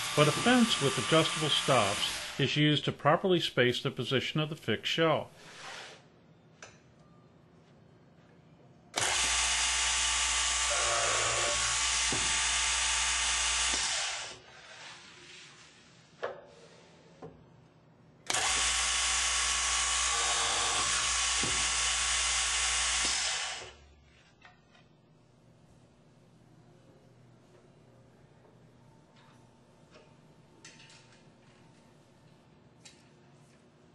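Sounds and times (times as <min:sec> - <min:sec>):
boring machine drilling: 0:00.0 - 0:02.4, 0:09.0 - 0:14.4, 0:18.3 - 0:23.8.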